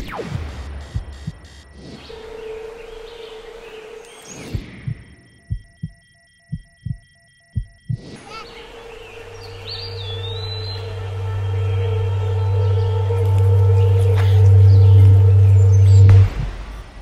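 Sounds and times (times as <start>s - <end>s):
heartbeat double thumps: 0.0s - 1.8s, 4.4s - 8.2s, 14.6s - 17.0s
steady hum: 0.0s - 17.0s
low drone: 8.5s - 17.0s.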